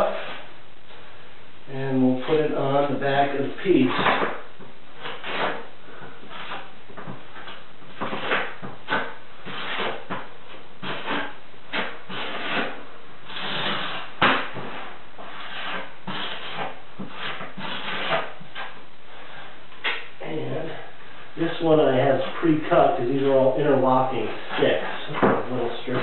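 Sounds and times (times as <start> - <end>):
mortar scraping onto tile: 5.0 - 20.0.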